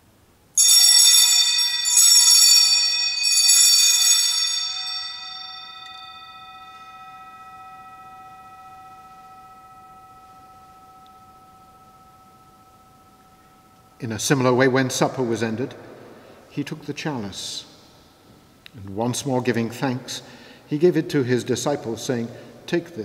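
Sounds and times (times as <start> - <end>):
altar bells ringing: 0.6 - 18.3.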